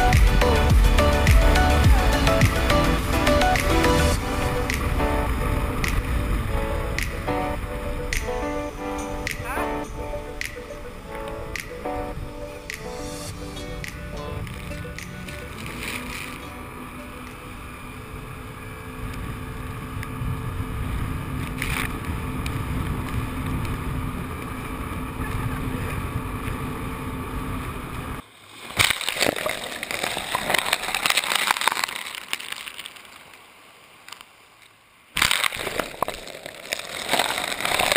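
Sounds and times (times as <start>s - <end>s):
water and wind rushing: 0.0s - 26.4s
jet ski engine drone: 0.0s - 28.2s
wave washing up pebble beach: 35.2s - 37.9s.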